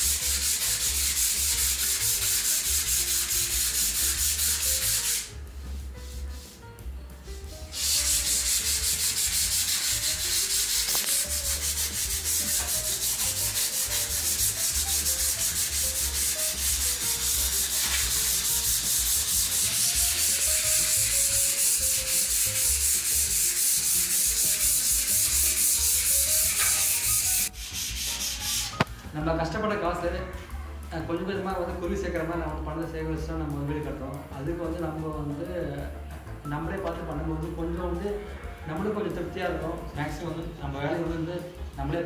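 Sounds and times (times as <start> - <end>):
sandpaper rubbing on wall putty: 0.0 - 6.6, 7.5 - 28.9.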